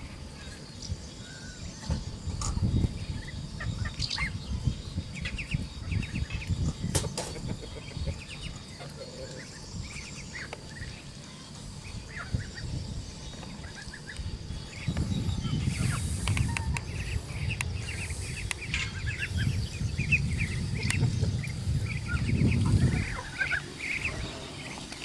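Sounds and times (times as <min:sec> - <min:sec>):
poultry chirping: 0:00.0 - 0:25.0
low rumble: 0:11.8 - 0:25.0.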